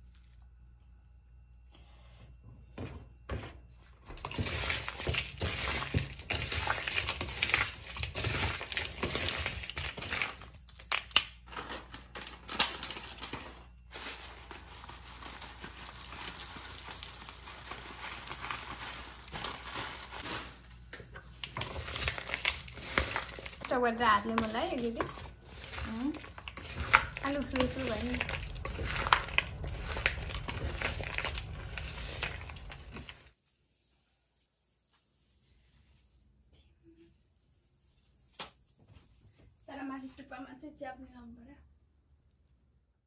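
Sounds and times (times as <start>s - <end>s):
dry food crumbling into bowl: 4.2s - 33.3s.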